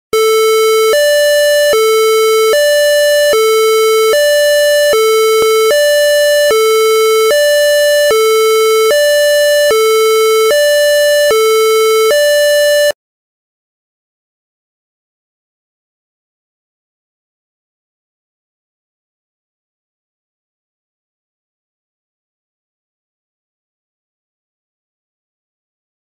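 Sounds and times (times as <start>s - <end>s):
electronic two-tone siren: 0.2s - 13.0s.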